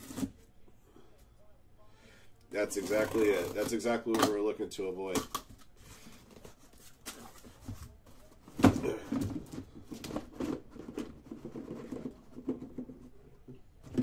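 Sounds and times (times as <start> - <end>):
cardboard scraping and rustling: 2.6 - 3.9.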